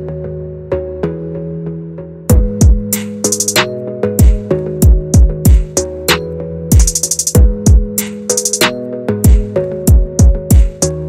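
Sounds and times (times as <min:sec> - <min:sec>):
held synth chords: 0:00.0 - 0:11.0
deep kick drum hits: 0:02.3 - 0:02.9, 0:04.2 - 0:05.7, 0:06.7 - 0:07.9, 0:09.3 - 0:10.7.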